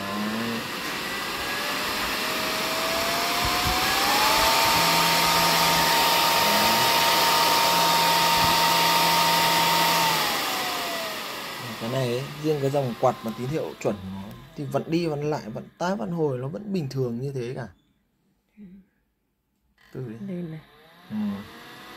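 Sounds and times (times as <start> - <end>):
fan whine and air rush: 0.0 - 16.2.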